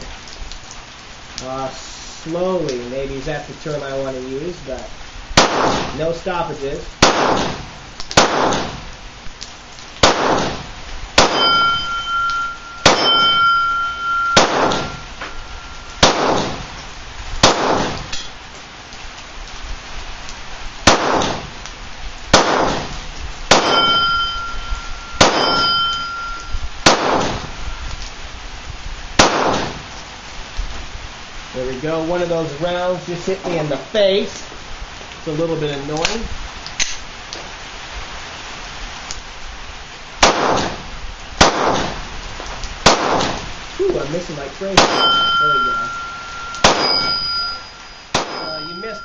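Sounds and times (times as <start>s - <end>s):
pistol shots: 5.4s - 6.0s, 7.0s - 8.8s, 10.0s - 15.0s, 16.0s - 16.7s, 17.4s - 18.1s, 20.8s - 21.5s, 22.3s - 24.4s, 25.2s - 27.5s, 29.2s - 29.8s, 40.2s - 40.8s, 41.4s - 42.0s, 42.8s - 43.5s, 44.8s - 48.8s
metallic ring: 11.3s - 16.0s, 23.6s - 26.7s, 44.9s - 49.0s.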